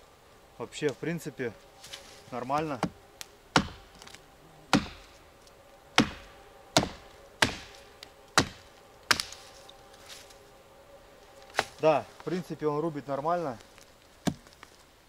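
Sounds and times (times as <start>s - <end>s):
axe chopping into tree: 3.6s - 5.1s, 6.0s - 7.8s, 8.4s - 9.4s, 11.5s - 11.8s, 14.2s - 14.5s.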